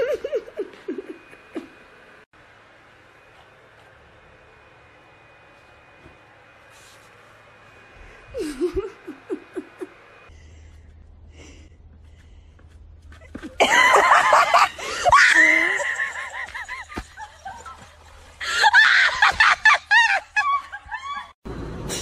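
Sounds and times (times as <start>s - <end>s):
high-pitched laughter: 0.0s - 1.8s, 8.4s - 10.0s, 13.4s - 21.4s.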